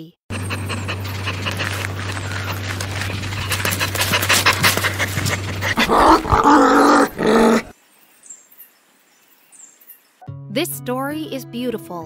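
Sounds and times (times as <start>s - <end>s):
dog panting: 0.3s - 7.3s
drawn-out dog vocalization: 0.3s - 7.7s
low hum: 0.3s - 7.7s.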